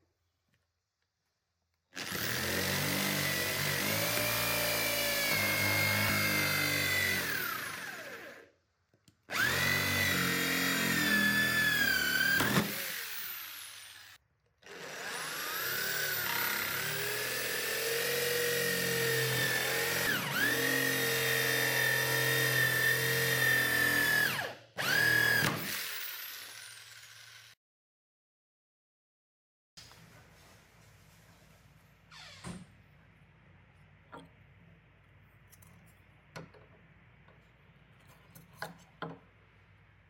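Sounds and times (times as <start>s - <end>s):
electric drill cutting plastic: 2.0s - 8.5s, 9.3s - 27.6s.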